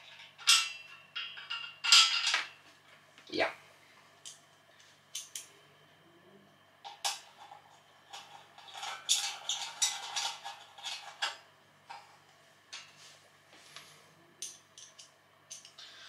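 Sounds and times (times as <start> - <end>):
screws and screwdriver on metal: 8.2 - 11.4.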